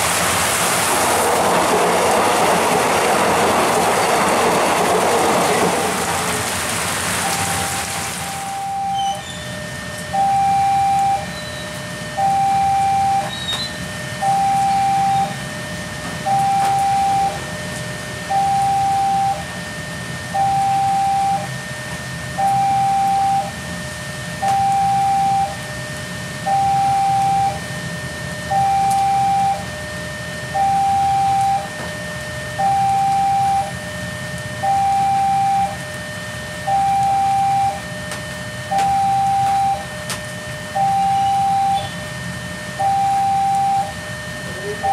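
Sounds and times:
steady rain hiss: 0.0 - 8.8
two-tone warning alarm: 7.2 - 44.9.

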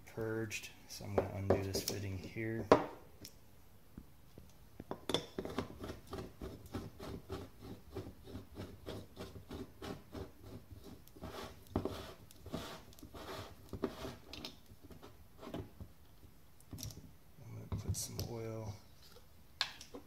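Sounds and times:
threaded cap scraping: 5.4 - 15.7.

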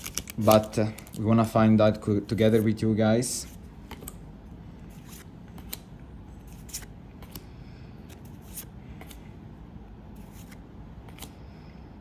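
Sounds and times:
card wrapper crinkling: 0.0 - 1.6.

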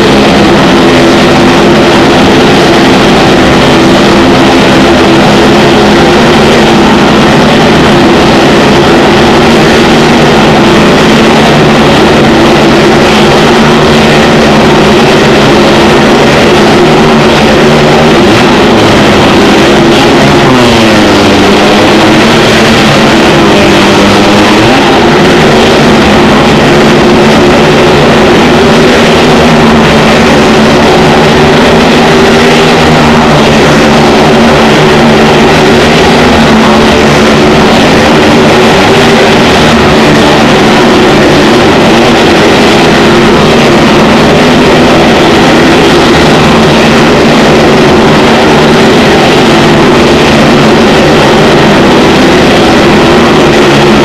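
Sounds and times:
motorcycle and car engines revving: 0.0 - 54.0.

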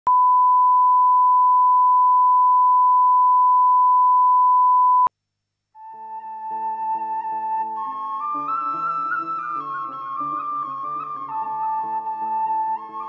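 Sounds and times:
single-pitch test tone: 0.1 - 5.1
music: 5.8 - 13.0.

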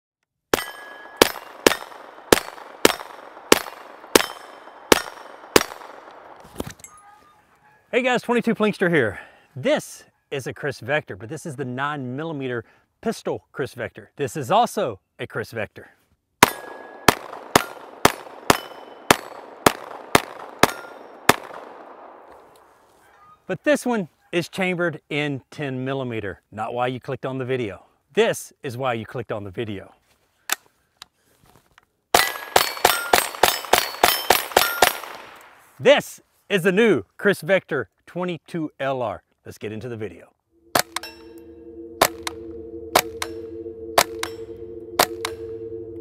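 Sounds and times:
steel targets ringing: 0.6 - 2.6, 3.5 - 5.9, 40.6 - 45.8
gunshots: 0.6 - 6.4, 16.4 - 22.3.

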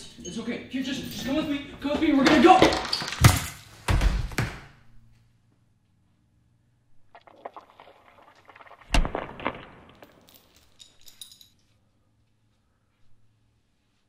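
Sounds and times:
sharp knocks and thumps: 1.9 - 4.7.

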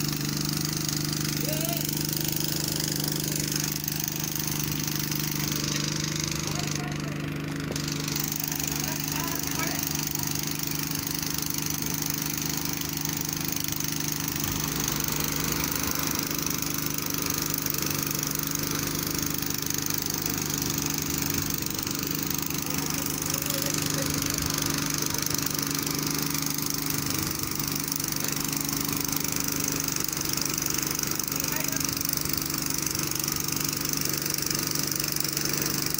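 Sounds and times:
crane diesel engine running: 0.0 - 35.9.

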